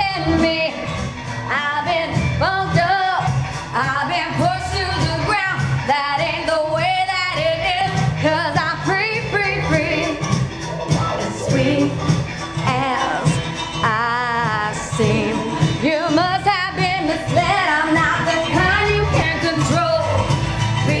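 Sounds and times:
woman singing with vibrato: 0.0s - 0.9s, 1.5s - 10.4s, 11.3s - 21.0s
pop backing track with bass: 0.0s - 21.0s.

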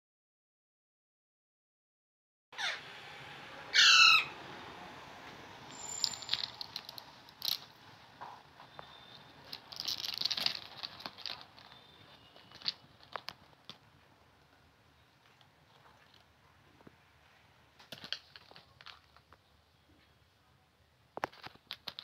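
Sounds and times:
parakeet harsh call: 2.6s - 3.0s, 3.7s - 4.5s
clicks and rustles on newspaper: 8.7s - 14.1s, 17.8s - 20.2s, 21.2s - 22.0s.

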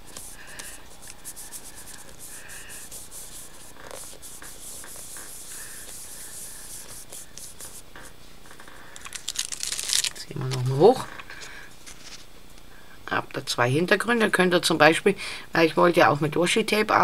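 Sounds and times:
palms rubbing on paper: 0.0s - 8.2s.

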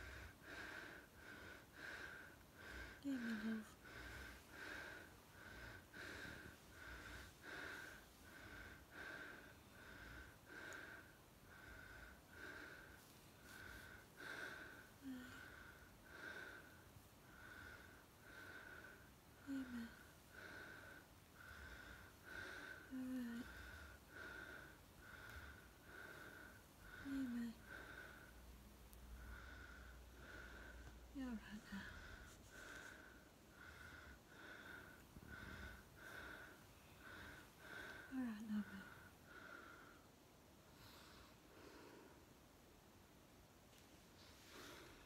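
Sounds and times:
woman moaning softly: 0.0s - 11.0s, 13.5s - 16.6s, 17.4s - 21.0s, 21.6s - 28.3s, 29.4s - 39.9s
woman breathing with wheeze: 0.0s - 45.0s.

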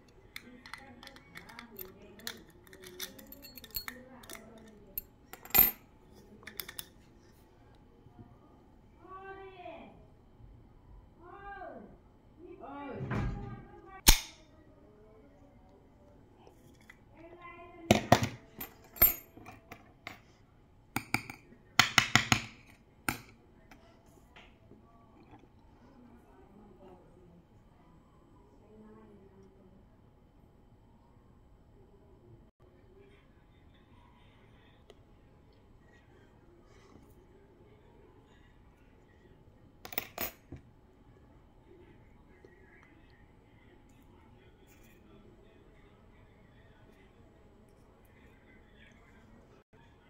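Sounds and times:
metal clinking on tiled floor: 0.3s - 5.8s, 17.9s - 20.2s, 39.8s - 40.6s.

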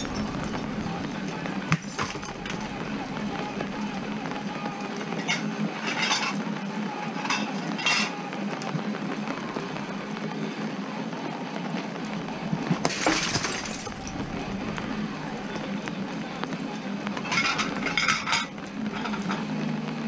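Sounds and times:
bat smashing breakable items: 1.6s - 4.3s, 12.8s - 15.8s.

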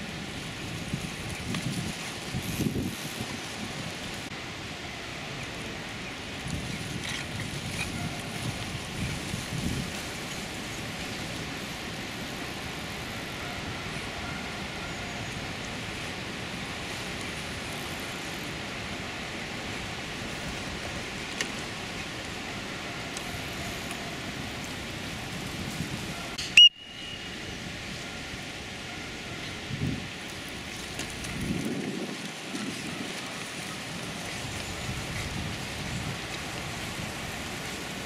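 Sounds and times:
wind on microphone: 0.0s - 4.3s, 5.5s - 12.1s, 23.2s - 38.0s.

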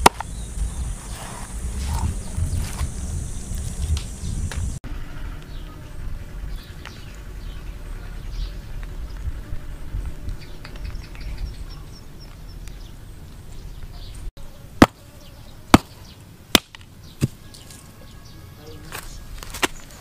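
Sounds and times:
hard object striking rock: 0.0s - 0.4s, 14.8s - 15.0s, 16.5s - 17.4s.

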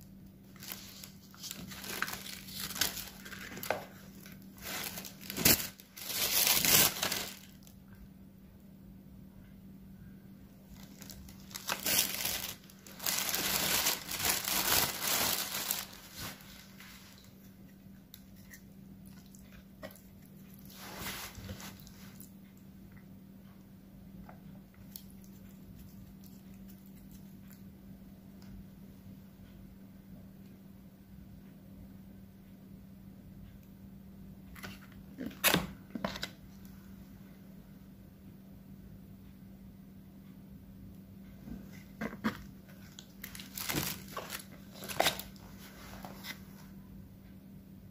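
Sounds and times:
faint steady hum: 0.0s - 47.9s
food packaging crinkling: 0.5s - 7.8s, 10.7s - 17.4s, 42.2s - 45.4s.

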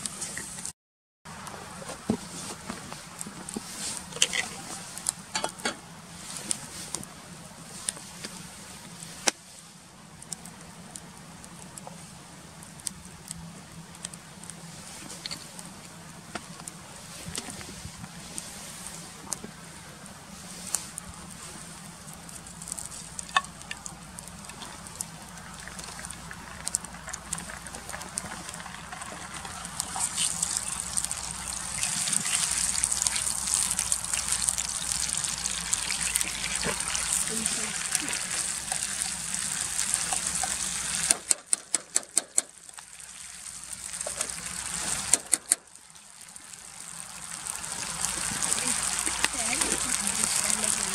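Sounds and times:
wood fire crackling: 1.3s - 50.9s
paste sizzling in hot oil: 20.6s - 50.9s
sharp pops of fire: 38.4s - 42.9s, 44.0s - 45.7s.

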